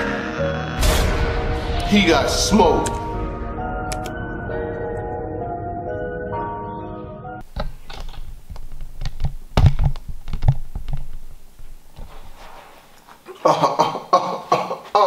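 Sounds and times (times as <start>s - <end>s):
chair knocking and thumping: 7.5s - 11.1s.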